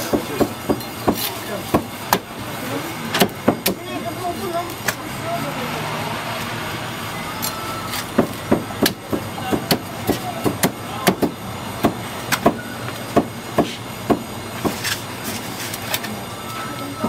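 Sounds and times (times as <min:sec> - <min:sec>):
cleaver chopping on wooden block: 0:08.1 - 0:12.6, 0:13.2 - 0:14.8.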